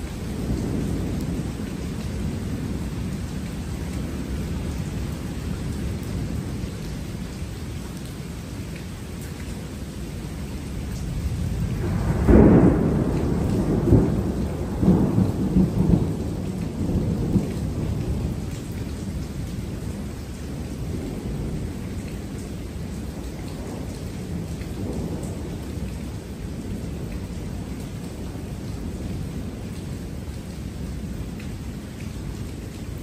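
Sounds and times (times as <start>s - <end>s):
thunder clap and rumble: 0.0s - 4.9s, 10.9s - 30.4s
steady rain: 0.0s - 33.0s.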